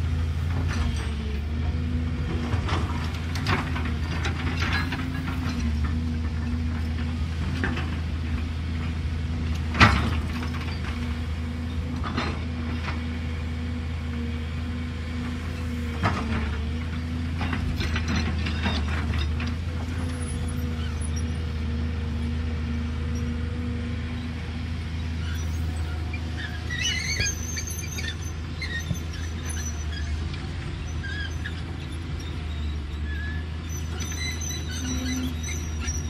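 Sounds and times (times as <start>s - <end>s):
excavator diesel engine: 0.0s - 36.0s
high squeaks: 26.4s - 30.2s, 32.4s - 36.0s.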